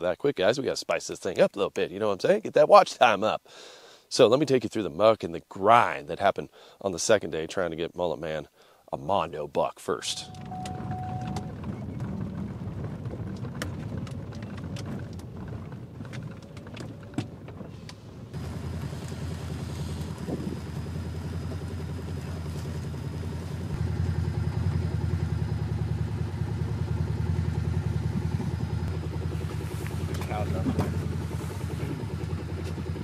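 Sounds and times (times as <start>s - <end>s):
vehicle cabin rumble: 10.1s - 33.0s
utility vehicle engine drone: 10.2s - 33.0s
small clicks and rattles: 10.3s - 18.0s.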